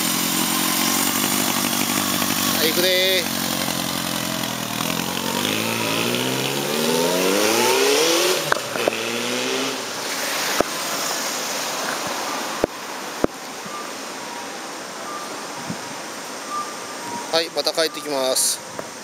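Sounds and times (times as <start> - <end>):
motorcycle accelerating away: 0.0 - 10.6.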